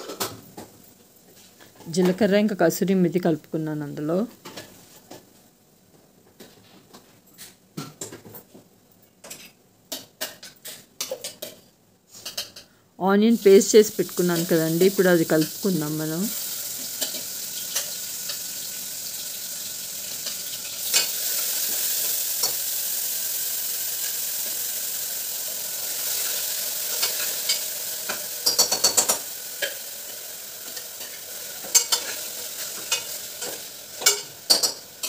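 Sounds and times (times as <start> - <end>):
onion paste sizzling in oil: 9.2 - 35.0.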